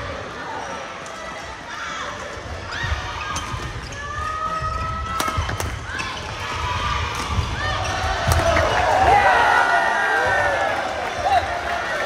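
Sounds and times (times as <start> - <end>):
rackets striking shuttlecock: 5.1 - 5.8.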